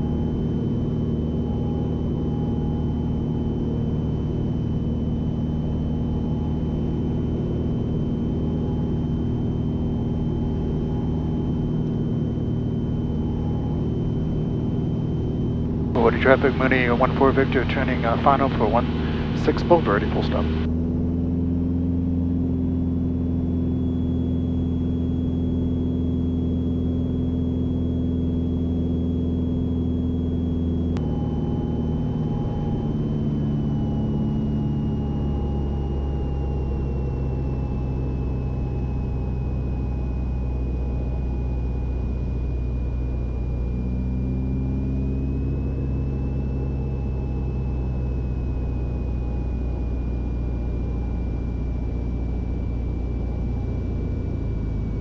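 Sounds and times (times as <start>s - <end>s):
propeller plane engine droning: 0.0s - 55.0s
click in cockpit: 30.7s - 31.6s.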